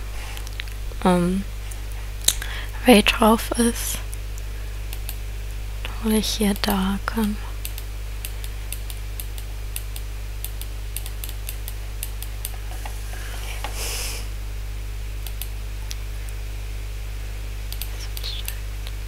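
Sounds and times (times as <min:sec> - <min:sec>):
steady low hum: 0:00.0 - 0:19.0
brief hiss: 0:13.7 - 0:14.3.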